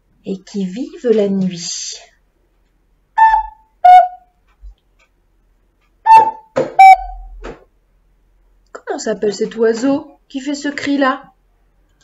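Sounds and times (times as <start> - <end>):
toy flute cuckoo calls: 3.2 - 4.3, 6.1 - 7.3.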